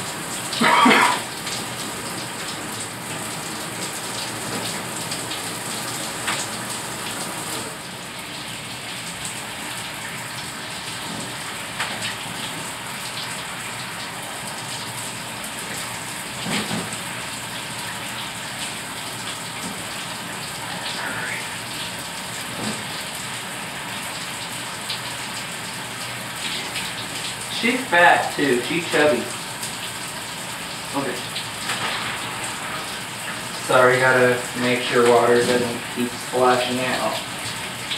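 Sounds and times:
water running into a bathtub: 0.0 - 37.9.

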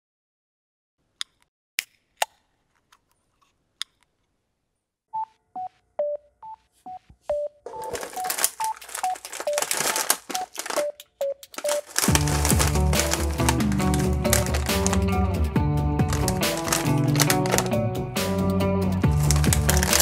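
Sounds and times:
plastic snack bag crinkling: 7.7 - 15.3, 16.0 - 17.8, 19.0 - 20.0.

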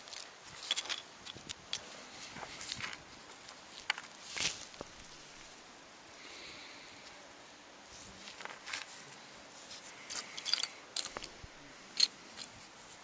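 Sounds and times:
metal bottle caps clicking: 10.4 - 11.3.

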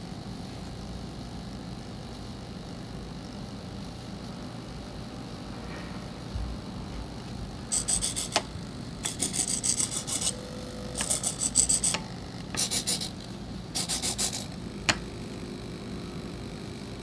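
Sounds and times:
servo gear buzzes: 7.7 - 15.5.

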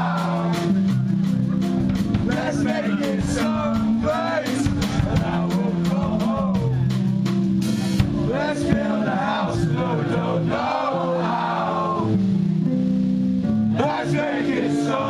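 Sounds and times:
drum kit: 0.0 - 15.0
man singing: 2.3 - 6.8, 8.3 - 10.5.

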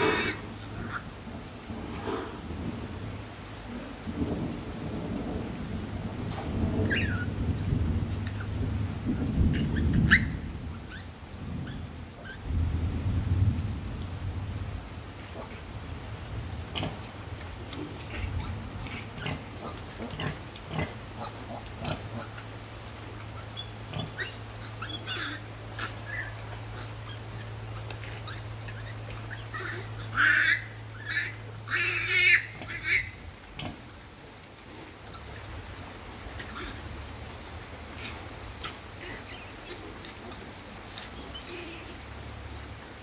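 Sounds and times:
piglet squeals: 6.8 - 7.3, 9.5 - 12.4, 23.4 - 33.2, 36.4 - 36.9, 38.6 - 40.0
piglets suckling squeaks and clicks: 11.7 - 12.4, 17.7 - 33.8, 36.3 - 37.2, 38.0 - 41.9.

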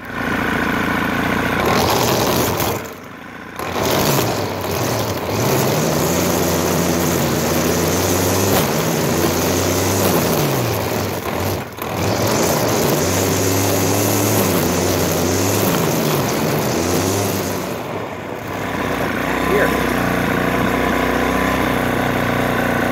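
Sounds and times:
string trimmer engine running: 0.0 - 22.9
nylon line whipping grass: 3.6 - 17.9.

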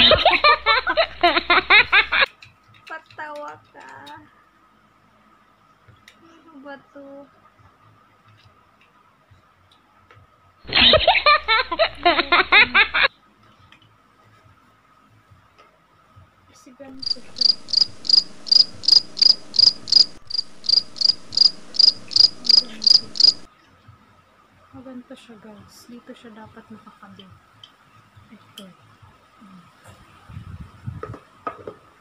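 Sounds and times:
cricket chirping: 16.9 - 23.5.

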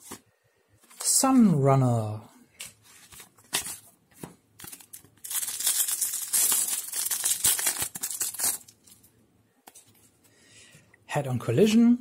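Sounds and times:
foil wrapper crinkling and tearing: 4.6 - 9.0.

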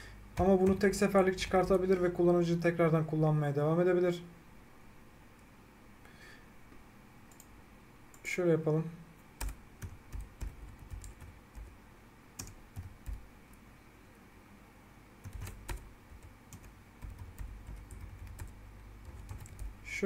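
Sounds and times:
computer keyboard typing: 0.4 - 2.0, 9.4 - 11.8, 12.4 - 13.3, 15.2 - 19.8.

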